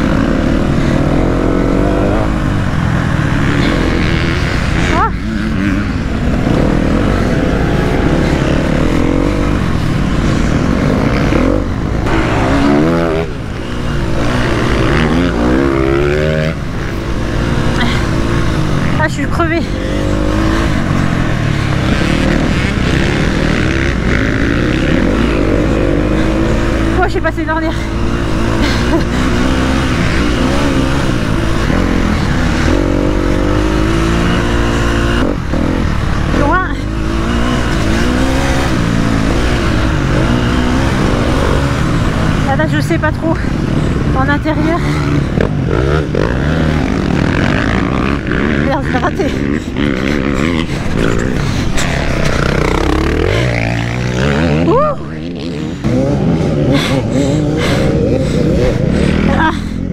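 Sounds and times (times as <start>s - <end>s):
motocross bike engine accelerating: 0.0s - 59.9s.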